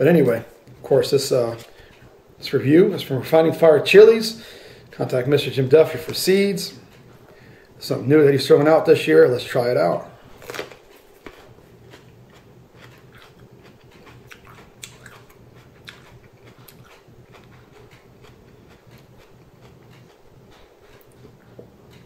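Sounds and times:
low room hum: 0.0 - 22.0
pepper crunching while chewed: 10.4 - 21.4.

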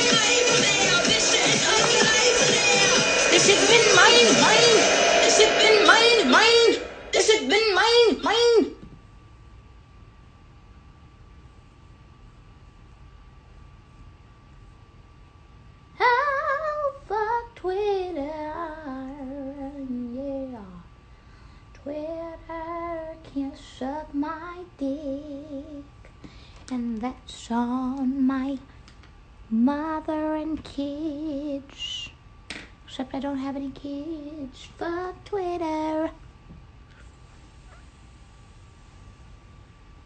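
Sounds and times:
woman singing unaccompanied: 0.0 - 8.6, 16.0 - 20.9, 21.8 - 26.0, 26.7 - 28.7, 29.5 - 32.2, 32.9 - 36.2.

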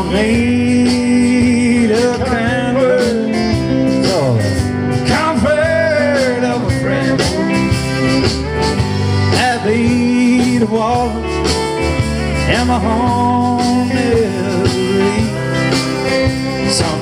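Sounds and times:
acoustic guitar: 0.0 - 17.0
bass guitar: 0.0 - 17.0
drums: 0.0 - 17.0
electric guitar: 0.0 - 17.0
pedal steel guitar: 0.0 - 17.0.

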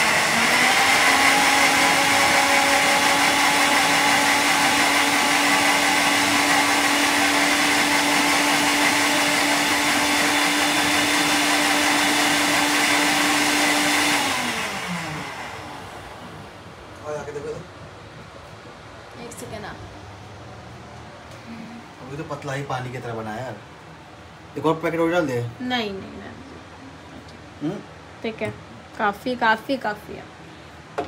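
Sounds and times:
electric blender running: 0.0 - 16.4.

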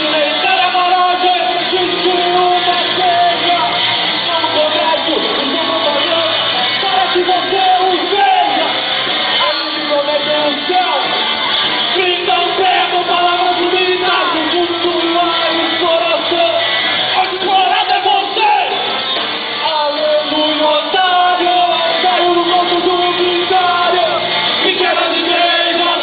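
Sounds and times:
live rock band playing: 0.0 - 26.0
voices yelling: 0.0 - 26.0.

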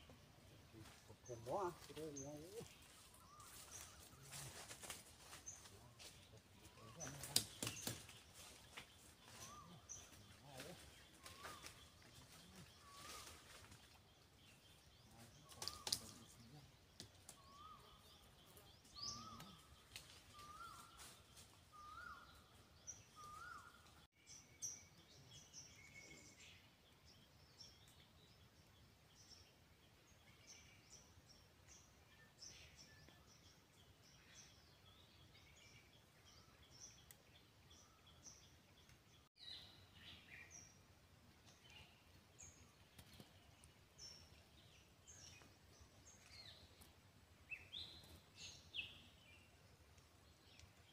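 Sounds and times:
wild birds calling: 0.0 - 24.1
sharp crackle: 15.4 - 17.5.

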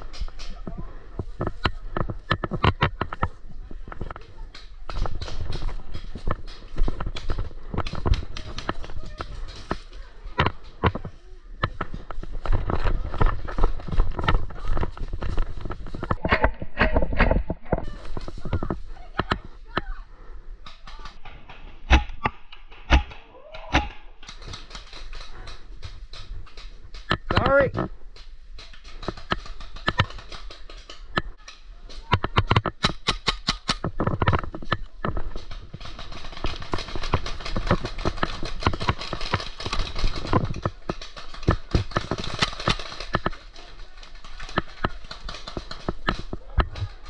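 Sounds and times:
paintball markers firing: 32.2 - 34.5.

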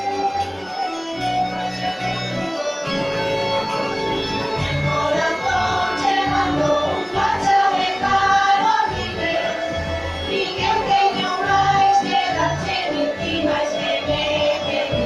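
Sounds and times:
electronic keyboard: 0.0 - 15.0
bass line: 2.0 - 7.4
women singing: 4.8 - 15.0.

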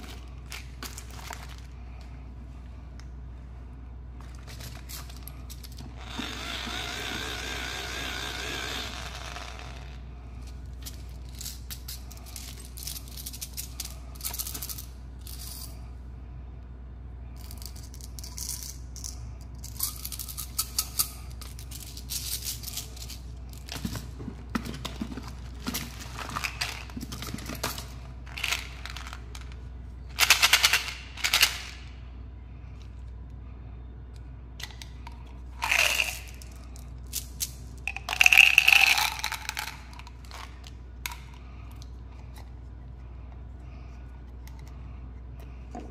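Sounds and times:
plastic packets rustling and crinkling: 0.0 - 1.8, 21.8 - 29.6
steady low hum: 0.0 - 45.9.

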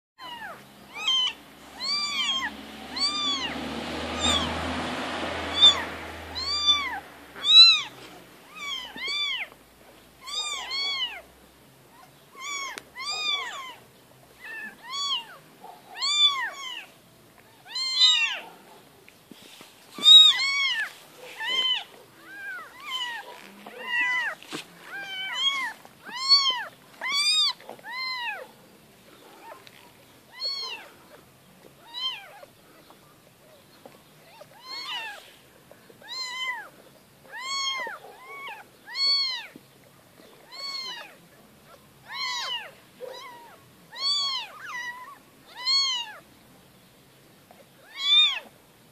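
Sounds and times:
kittens mewing: 0.2 - 9.6, 10.2 - 11.3, 11.9 - 16.9, 17.6 - 18.5, 20.0 - 28.6, 29.3 - 31.2, 31.8 - 32.5, 34.2 - 35.4, 36.0 - 39.6, 40.2 - 46.2.

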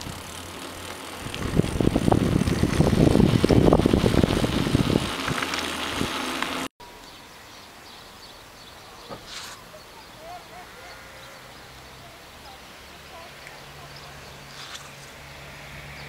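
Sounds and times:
wind buffeting microphone: 1.1 - 6.2.

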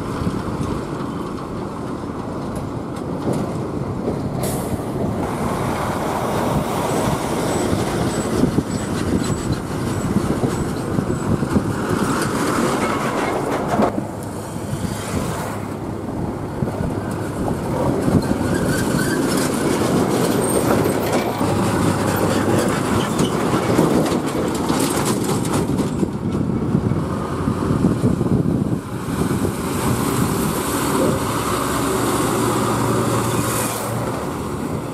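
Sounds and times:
lorries rumbling past: 0.0 - 34.9.

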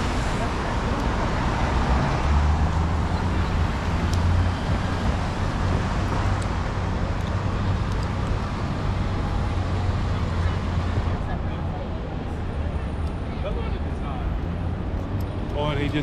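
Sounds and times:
passing cars hum: 0.0 - 16.0.

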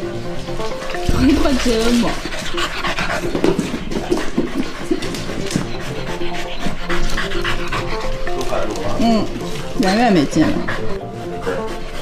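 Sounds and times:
paws pattering on floor: 0.0 - 12.0
dog panting: 0.4 - 12.0
dog whining: 4.6 - 12.0.

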